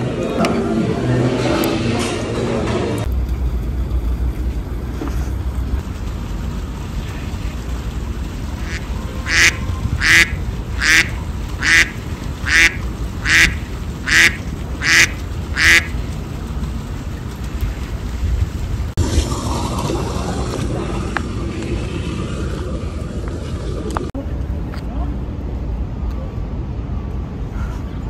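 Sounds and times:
low background rumble: 0:03.0 - 0:28.0
geese honking: 0:08.6 - 0:16.0.

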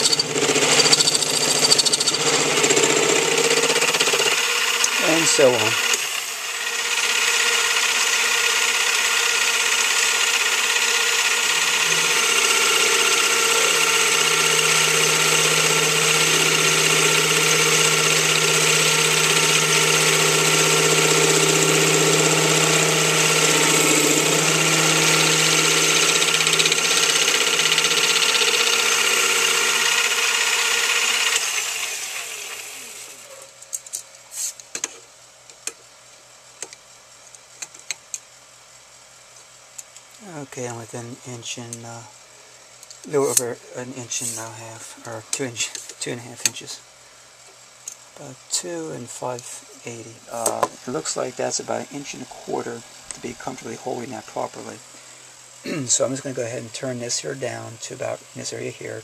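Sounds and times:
metal lathe whine: 0:00.0 - 0:33.4.

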